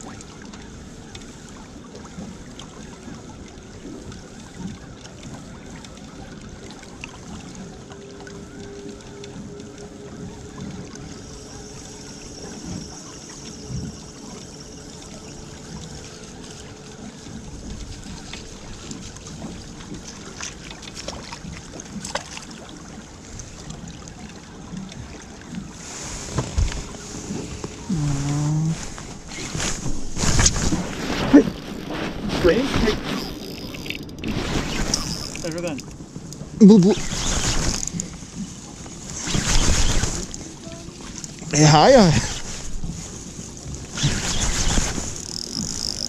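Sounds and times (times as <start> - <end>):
water noise: 0.0 - 46.0
wind noise: 25.8 - 35.4.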